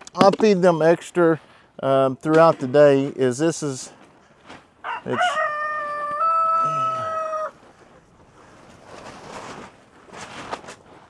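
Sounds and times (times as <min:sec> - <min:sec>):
rooster crowing: 0:04.8 - 0:07.6
faint rustling: 0:07.5 - 0:11.0.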